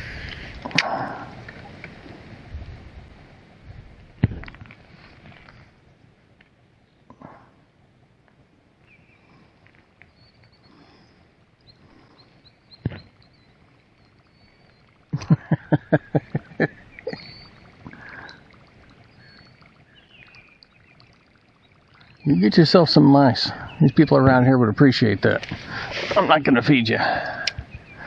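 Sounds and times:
faint high chirps: 0:11.6 - 0:15.2, 0:16.6 - 0:24.1.

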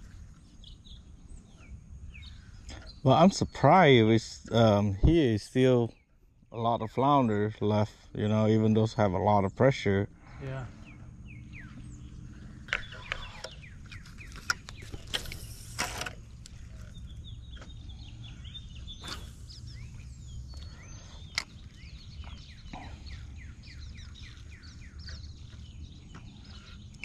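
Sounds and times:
birds chirping: 0:00.0 - 0:27.0
steady low rumble: 0:06.8 - 0:27.0.

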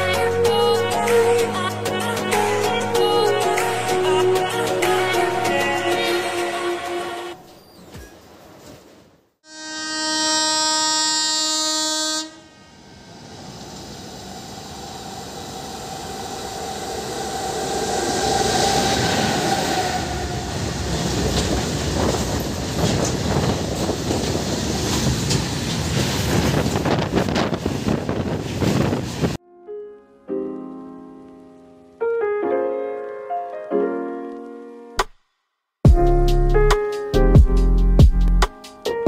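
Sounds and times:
train horn: 0:09.4 - 0:12.9, 0:16.7 - 0:20.8
freight train rumbling: 0:12.9 - 0:29.4
wheels clattering over rail joints: 0:20.5 - 0:29.3.

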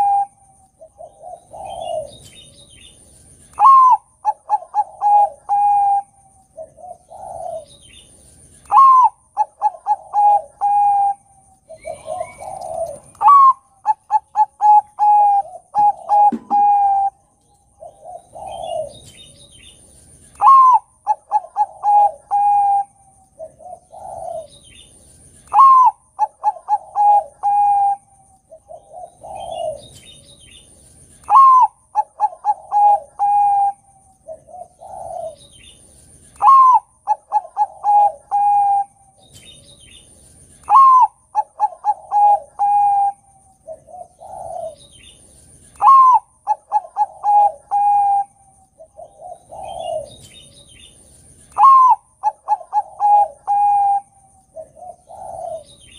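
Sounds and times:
softer lower dove coo: 0:00.0 - 0:30.2, 0:31.1 - 0:39.6, 0:40.6 - 0:55.9
dove cooing song: 0:00.0 - 0:55.9.

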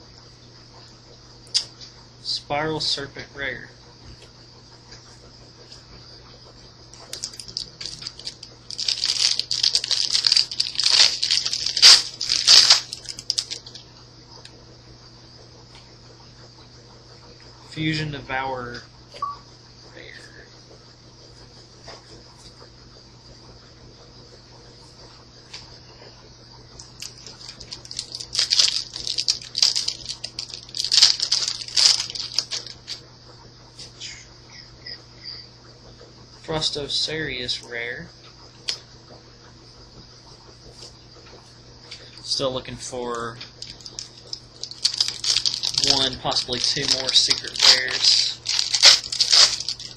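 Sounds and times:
low electrical hum: 0:00.0 - 0:49.9
foil wrapper crinkling and tearing: 0:07.1 - 0:13.9, 0:26.8 - 0:33.0, 0:43.6 - 0:49.9.

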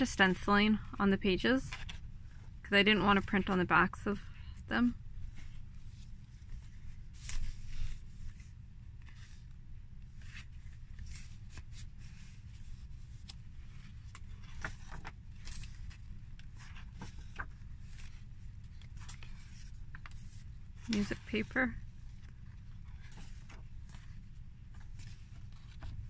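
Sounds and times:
paper pages rustling: 0:01.6 - 0:02.4, 0:05.2 - 0:26.0.

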